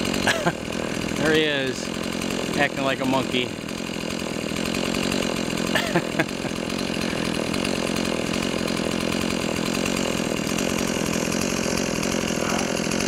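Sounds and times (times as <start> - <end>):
chainsaw engine running: 0.0 - 13.0.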